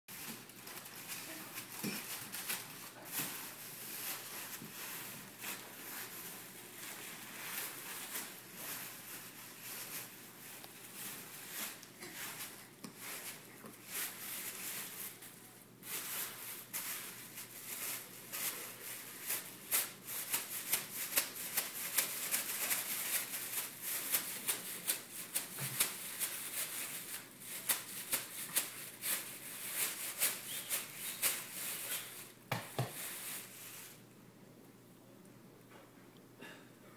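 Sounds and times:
plastic bags crinkling: 0.1s - 34.0s.

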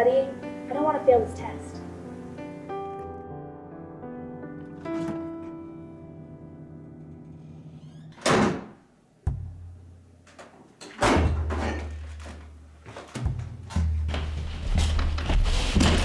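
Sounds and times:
refrigerator door opening: 4.6s - 5.6s, 7.8s - 9.5s, 10.4s - 14.0s
door shutting with a thud: 4.8s - 5.5s, 7.8s - 9.6s, 10.9s - 12.4s.

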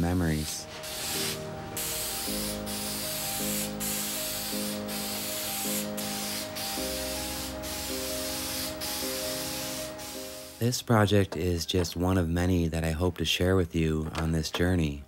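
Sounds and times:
aerosol spray can hissing: 0.7s - 10.6s.

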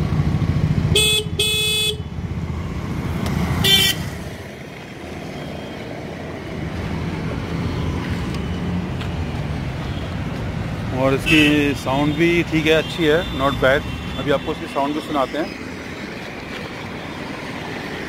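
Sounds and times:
scooter horn beeps: 0.9s - 2.0s, 3.6s - 4.1s, 11.3s - 11.6s.

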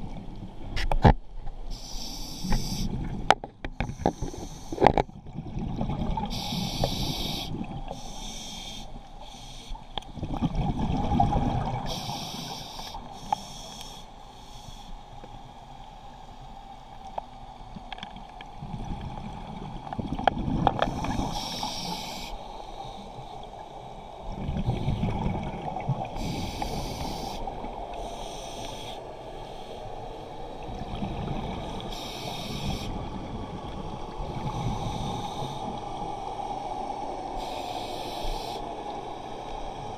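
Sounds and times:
diver inhaling through regulator: 1.7s - 3.0s, 6.3s - 9.8s, 11.9s - 15.0s, 20.8s - 23.2s, 26.2s - 29.9s, 31.7s - 33.0s, 34.4s - 35.8s, 37.4s - 38.7s
exhaled bubbles rumbling: 5.0s - 6.7s, 10.1s - 11.9s, 18.5s - 21.3s, 24.2s - 26.8s, 30.6s - 31.9s.

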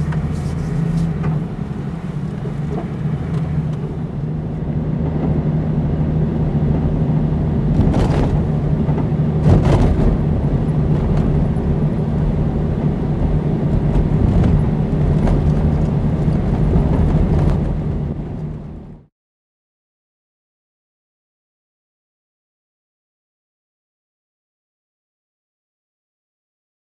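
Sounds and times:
vehicle clunks and rattles: 0.0s - 19.1s
vehicle engine under load: 0.0s - 19.1s.

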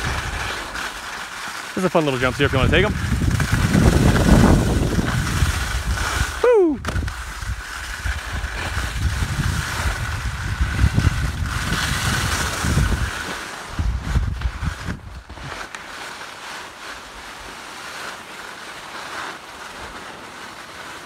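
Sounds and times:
skis sliding on snow: 0.0s - 21.0s
wind buffeting microphone: 2.2s - 15.5s.

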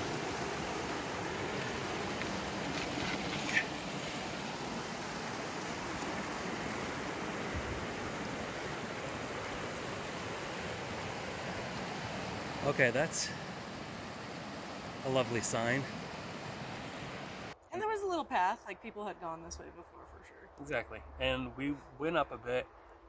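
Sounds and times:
water rushing over rocks: 0.0s - 17.6s.

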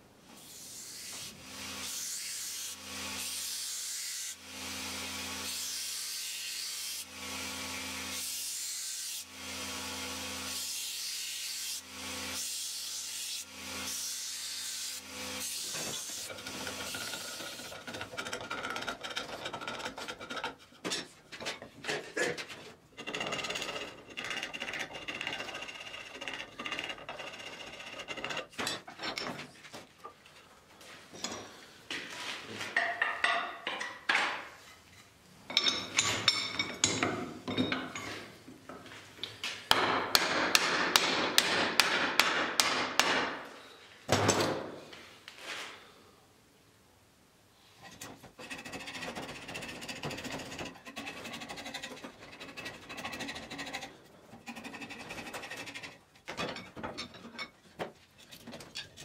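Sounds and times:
scraping and knocking on wood: 15.7s - 30.4s, 47.8s - 59.0s.

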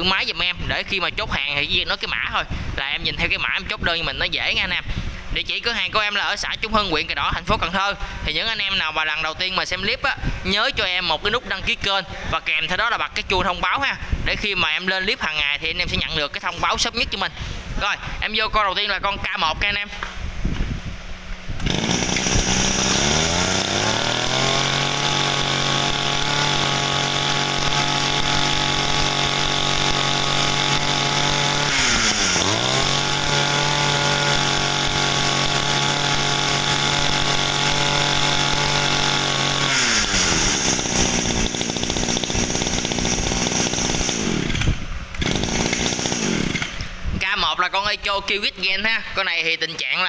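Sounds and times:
brush cutter engine revving: 21.5s - 47.0s.

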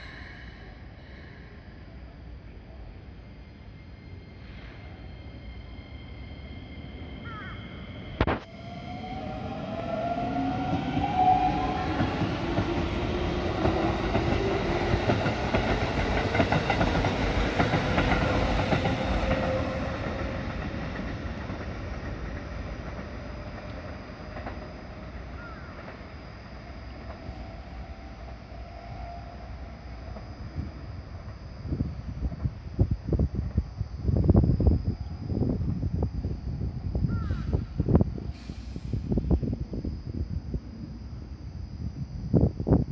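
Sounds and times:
electric train motors whining: 0.0s - 42.9s
train wheels clattering over rails: 10.6s - 26.1s.

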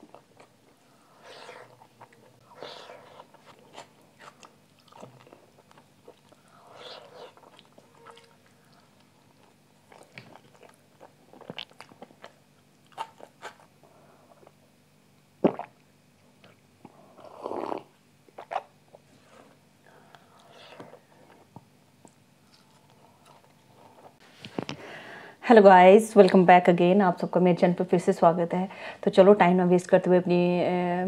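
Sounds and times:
person chewing: 0.0s - 14.6s, 15.4s - 15.7s, 17.6s - 24.2s
person gulping: 15.4s - 15.8s.

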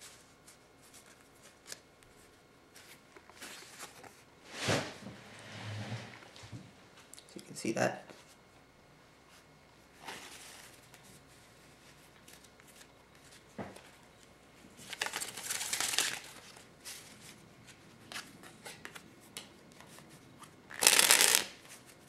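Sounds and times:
playing cards rustling: 14.8s - 22.0s
cards swishing: 20.8s - 21.5s.

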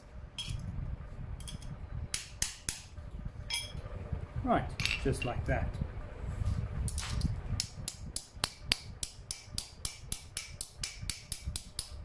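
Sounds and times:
hammer striking steel on anvil: 7.9s - 11.9s.

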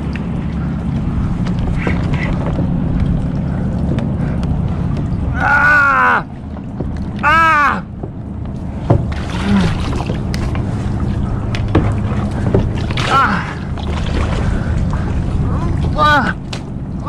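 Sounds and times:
lapping water: 0.0s - 17.0s
wind noise on microphone: 0.0s - 17.0s
sharp knocks: 8.8s - 9.2s, 11.7s - 12.8s.

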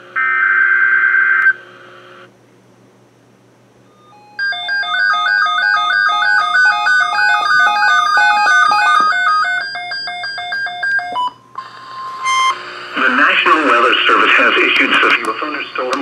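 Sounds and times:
warbling electronic alarm beeps: 3.9s - 12.6s.

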